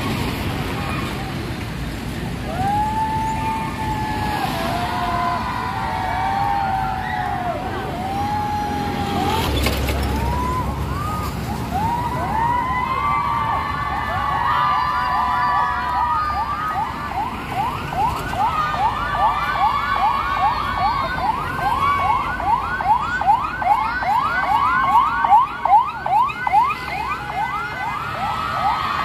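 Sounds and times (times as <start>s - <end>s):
wailing siren: 2.5s - 29.0s
yelp siren: 2.6s - 29.0s.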